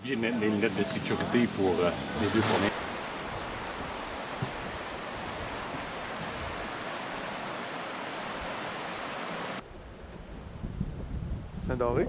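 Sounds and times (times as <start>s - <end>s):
river rapids rushing: 0.4s - 9.6s.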